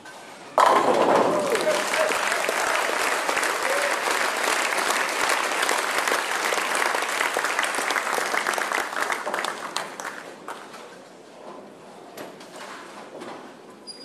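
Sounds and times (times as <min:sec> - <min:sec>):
crowd applauding: 0:01.2 - 0:10.7.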